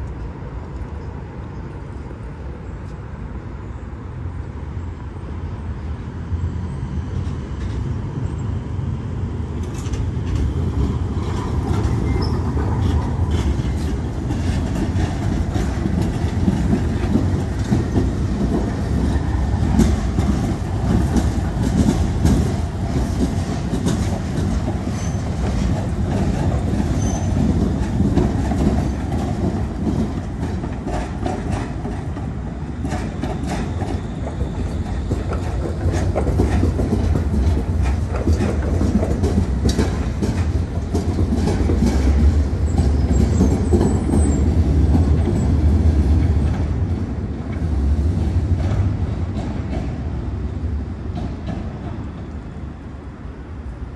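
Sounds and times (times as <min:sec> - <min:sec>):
tram rolling rumble: 0:00.0 - 0:53.9
wheels clicking over rail joints: 0:09.6 - 0:52.5.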